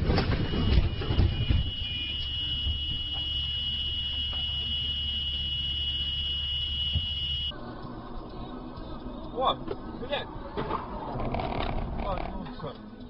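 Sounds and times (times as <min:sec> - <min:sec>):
high-pitched alarm buzzer: 0:01.3 - 0:07.5.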